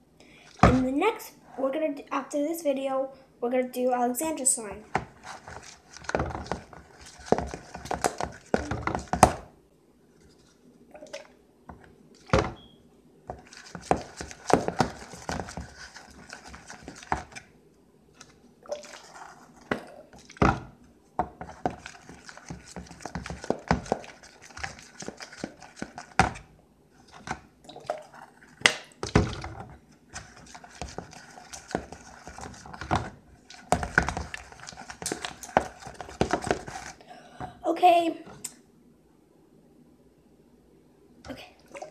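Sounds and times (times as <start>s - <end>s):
spoon scraping plastic bowl: 4.9s - 9.3s, 13.3s - 17.5s, 21.4s - 37.0s.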